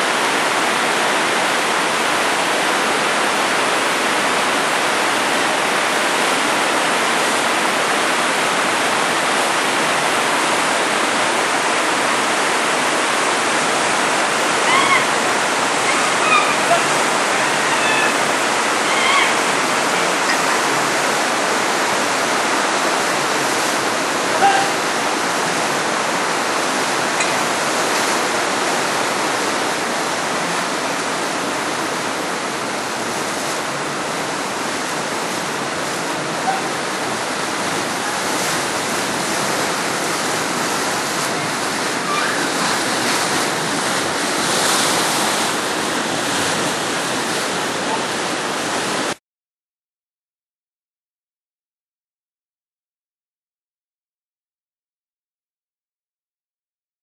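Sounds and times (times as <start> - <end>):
river rushing over rocks: 0.0 - 49.2.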